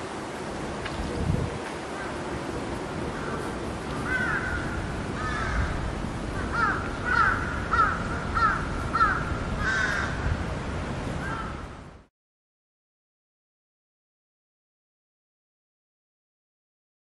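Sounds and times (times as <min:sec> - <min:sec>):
steady background hiss: 0:00.0 - 0:12.1
crow cawing: 0:03.1 - 0:10.3, 0:11.2 - 0:11.7.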